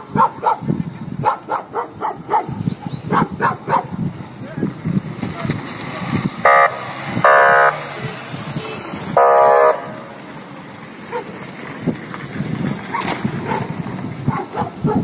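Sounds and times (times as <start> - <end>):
car horn honking: 6.4 - 10.2.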